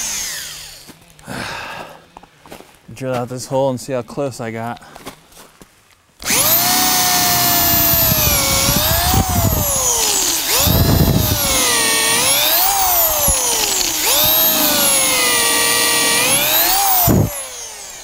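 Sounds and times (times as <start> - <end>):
power drill boring into wood: 0.0 - 0.9, 6.2 - 18.0.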